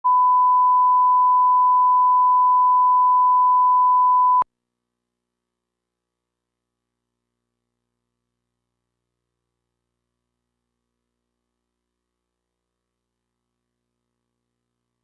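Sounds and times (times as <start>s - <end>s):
pure test tone beep: 0.0s - 4.4s.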